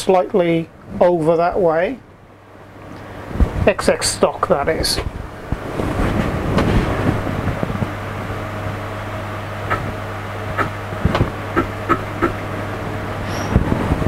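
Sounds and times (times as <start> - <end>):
steady low hum: 0.0 - 14.0
mill axes ticking: 10.5 - 12.4.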